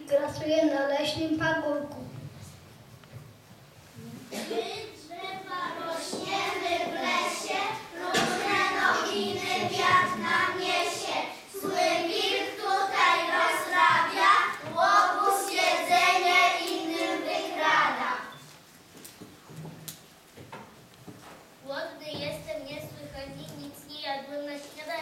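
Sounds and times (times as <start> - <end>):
young children singing: 4.3 - 18.5.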